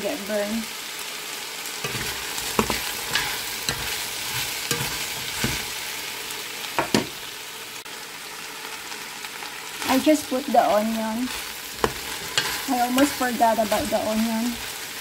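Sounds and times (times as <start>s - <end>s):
meat and potatoes sizzling: 0.0s - 15.0s
spoon scraping and knocking pot: 1.8s - 5.7s, 11.7s - 13.9s.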